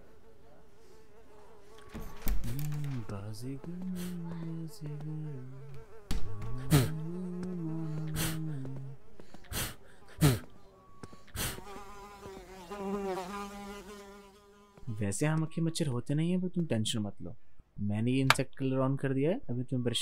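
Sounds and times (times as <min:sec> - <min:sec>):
flying insect buzzing: 0:00.0 - 0:09.8, 0:11.3 - 0:14.8.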